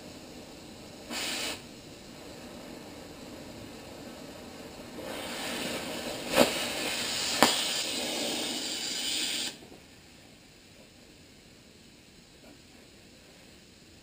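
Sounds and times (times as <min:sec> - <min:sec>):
cutting torch hissing: 0:00.0 - 0:10.6
sharp pops: 0:05.0 - 0:09.7.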